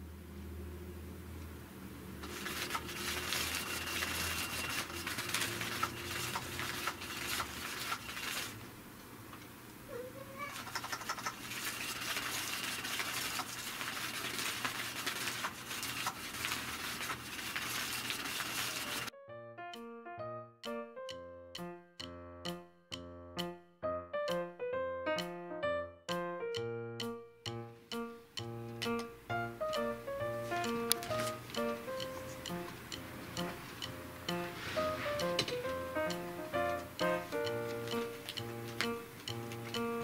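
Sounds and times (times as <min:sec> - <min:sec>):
cat toy wand scratching fabric: 0:02.2 - 0:08.6, 0:10.2 - 0:19.1.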